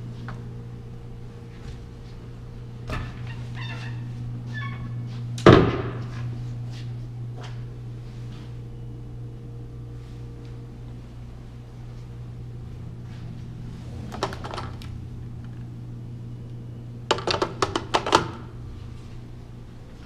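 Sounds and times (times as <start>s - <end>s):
intercom handset clicks and knocks: 17.1s - 18.4s.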